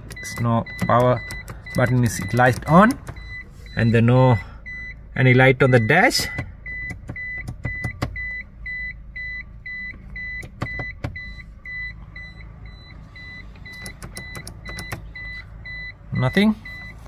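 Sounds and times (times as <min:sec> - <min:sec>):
car warning chime beeping: 0:00.0 - 0:17.0
sharp clicks: 0:13.7 - 0:15.0.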